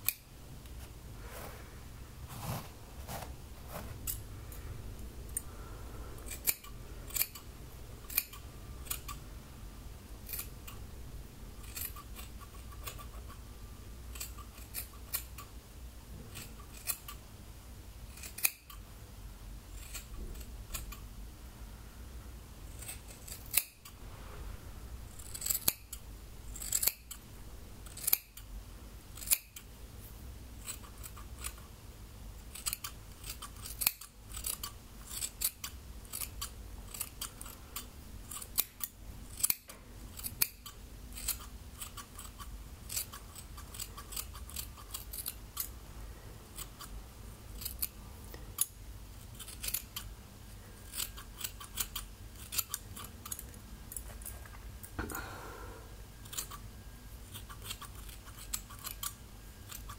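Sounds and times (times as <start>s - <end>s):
scissors snipping hair: 0.0s - 0.2s, 6.3s - 9.2s, 10.2s - 10.8s, 11.6s - 13.4s, 14.1s - 15.5s, 16.3s - 17.2s, 18.1s - 18.8s, 19.8s - 21.0s, 22.8s - 24.0s, 25.2s - 26.0s, 26.6s - 27.2s, 27.8s - 28.5s, 29.2s - 29.7s, 30.6s - 31.6s, 32.5s - 45.7s, 46.6s - 46.9s, 47.6s - 48.0s, 48.6s - 50.1s, 50.9s - 54.0s, 56.2s - 56.6s, 57.3s - 59.9s.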